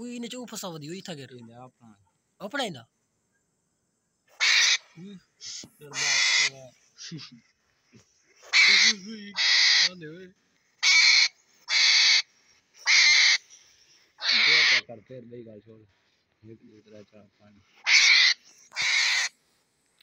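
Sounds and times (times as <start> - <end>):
hedgehog hissing: 4.3 - 7.2, 8.4 - 9.9, 10.8 - 13.5, 14.2 - 14.8, 17.8 - 19.3.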